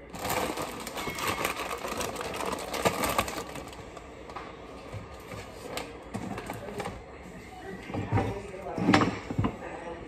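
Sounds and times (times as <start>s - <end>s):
plastic packaging rustling: 0.0s - 7.0s.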